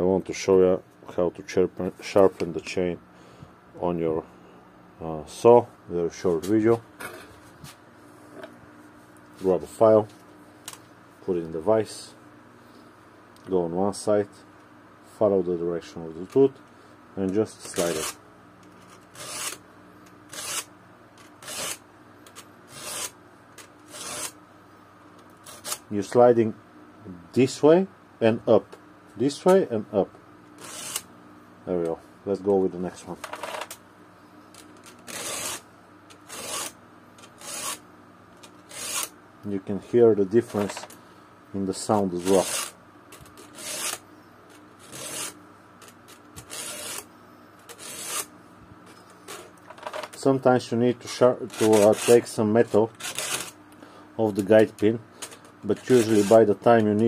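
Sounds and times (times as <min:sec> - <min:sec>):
file rasping on chainsaw teeth: 0:43.5 - 0:44.0, 0:44.8 - 0:45.4, 0:46.5 - 0:47.0, 0:47.7 - 0:48.3.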